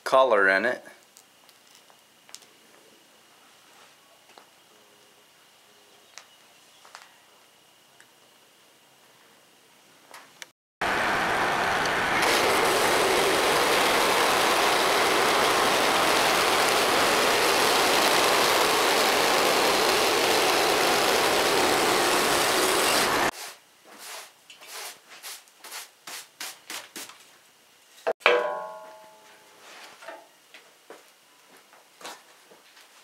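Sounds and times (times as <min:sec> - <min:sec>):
bandsaw mill cutting log: 0:10.8 - 0:23.3
gas engine running: 0:10.8 - 0:23.3
sharp knock with ring: 0:28.2 - 0:29.2.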